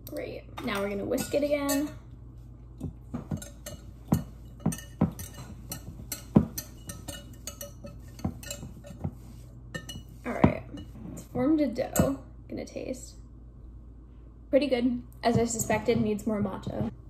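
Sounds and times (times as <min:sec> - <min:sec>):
whisk clinking against glass jug: 0:03.2 - 0:10.1.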